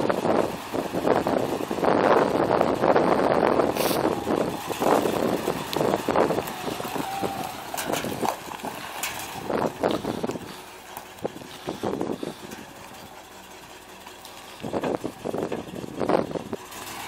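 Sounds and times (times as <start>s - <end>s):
wind on microphone: 0.0s - 10.6s, 11.2s - 12.5s
truck engine running and idling: 0.0s - 17.0s.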